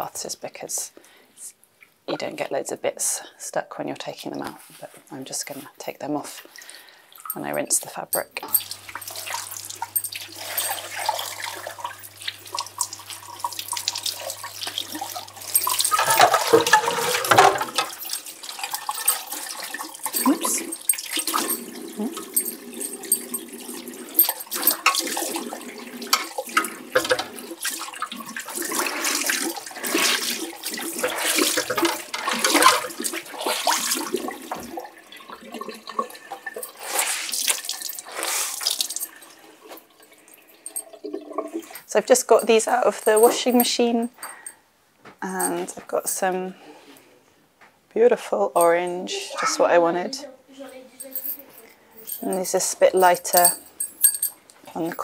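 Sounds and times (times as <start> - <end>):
tap water running into sink: 8.4 - 41.8.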